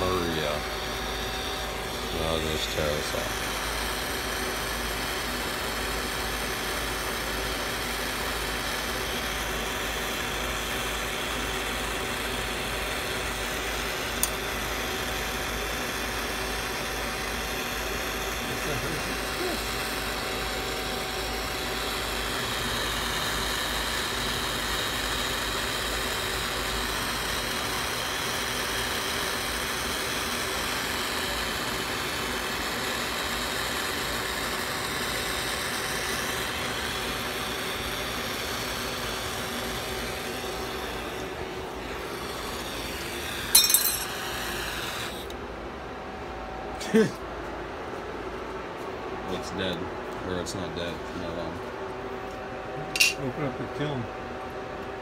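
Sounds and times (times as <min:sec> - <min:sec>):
torch burning with rushing hiss: 0:00.0 - 0:45.3
sharp clatter: 0:43.5 - 0:44.2.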